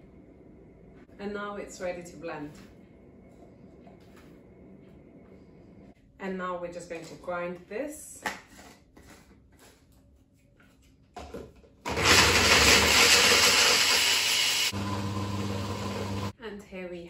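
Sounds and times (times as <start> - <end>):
blender motor grinding: 11.9 - 16.3.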